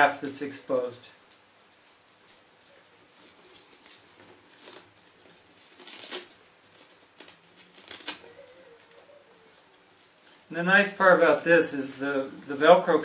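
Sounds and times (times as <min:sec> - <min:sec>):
velcro strip rustling: 0:00.8 - 0:12.5.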